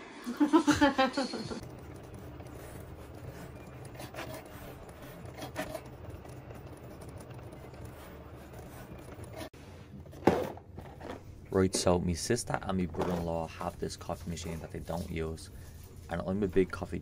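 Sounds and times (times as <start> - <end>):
blade rubbing and scraping: 1.6 - 9.5.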